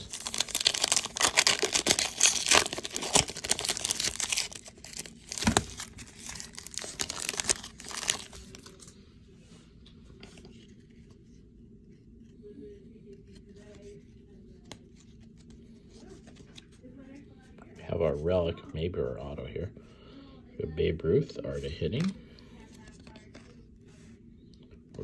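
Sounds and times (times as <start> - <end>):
card pack wrapper tearing: 0.0 - 8.8
faint low hum: 0.1 - 25.0.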